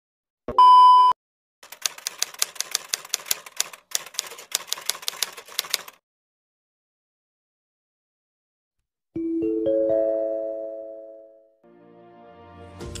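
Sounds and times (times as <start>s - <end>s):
brief electronic beep: 0.5s - 1.2s.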